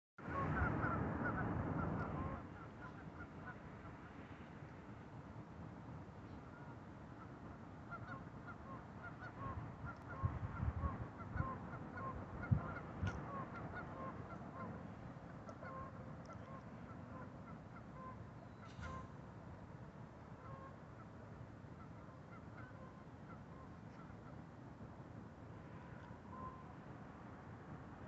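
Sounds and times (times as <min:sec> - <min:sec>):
geese honking: 0:00.3 - 0:03.6, 0:06.5 - 0:19.1, 0:20.4 - 0:21.2, 0:21.8 - 0:24.4, 0:25.8 - 0:26.8.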